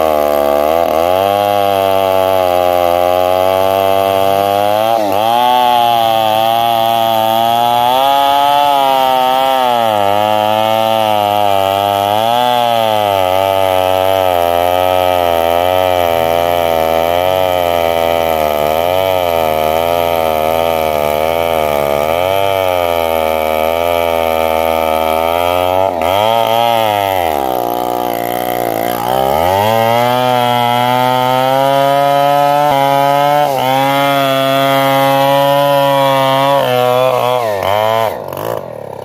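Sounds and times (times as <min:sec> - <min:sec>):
chainsaw cutting wood: 0:00.0 - 0:39.0.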